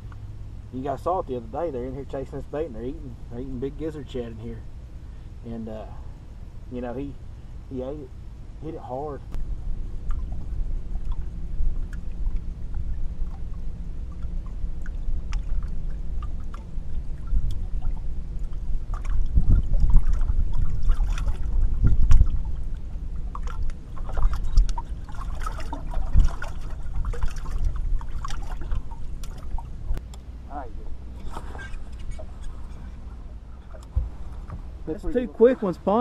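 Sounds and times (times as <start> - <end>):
low rumble: 0.0 - 36.0
water lapping against hull: 7.2 - 30.0, 30.9 - 36.0.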